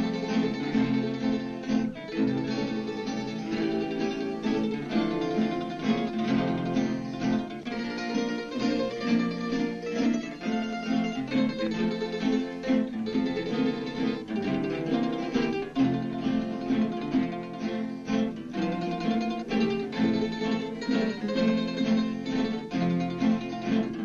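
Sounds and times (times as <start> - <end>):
acoustic guitar playing: 0.0 - 24.0.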